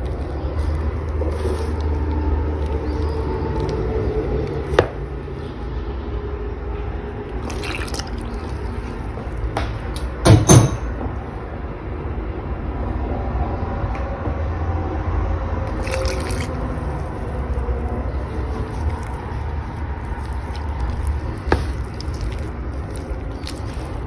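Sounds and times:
spatula squelching dough: 0.0s - 5.6s, 7.2s - 9.6s, 15.7s - 24.0s.

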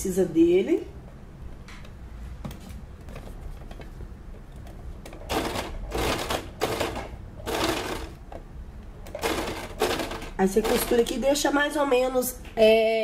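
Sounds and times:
sewing machine stitching: 5.1s - 8.2s, 9.1s - 11.2s.

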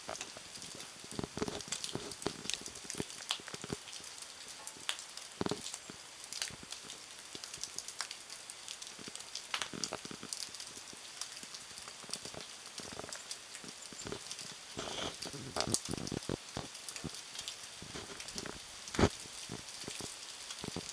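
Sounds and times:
ice pellets ticking: 0.0s - 20.9s
sleet hissing: 14.8s - 15.5s.

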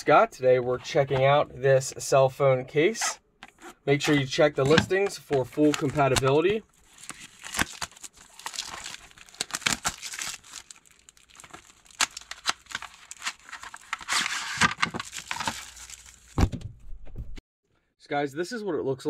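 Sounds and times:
plastic wrapping crinkling and tearing: 5.4s - 16.4s.

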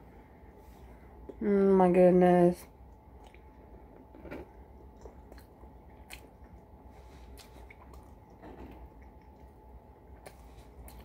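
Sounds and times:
faint chewing: 2.9s - 11.0s.

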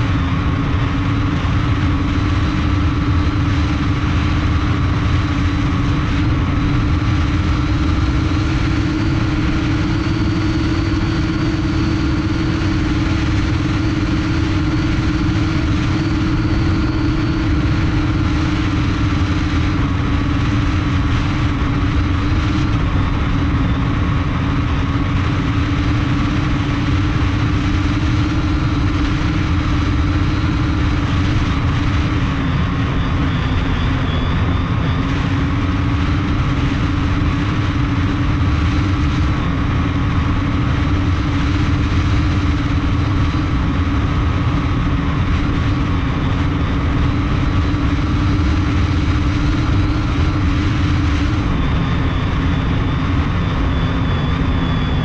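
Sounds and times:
drone motors humming: 0.0s - 55.0s
low rumble: 0.0s - 55.0s.

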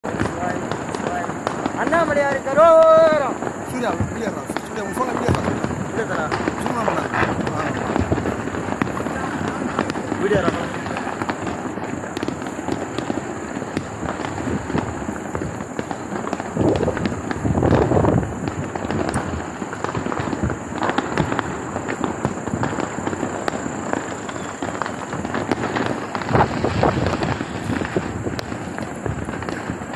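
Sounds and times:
firecrackers crackling and popping: 0.0s - 29.9s.

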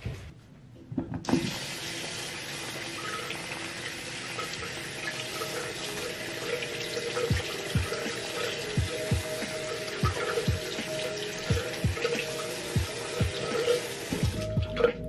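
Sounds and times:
tap running into sink: 1.0s - 2.2s.

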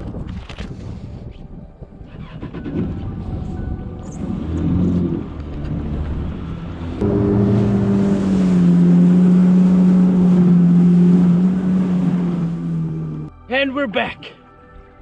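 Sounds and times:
water and wind noise: 0.0s - 13.3s
jet ski engine drone: 4.2s - 13.3s.

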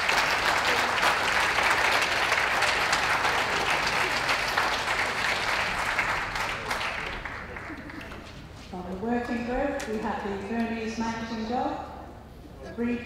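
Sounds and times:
crowd applauding: 0.0s - 8.5s.

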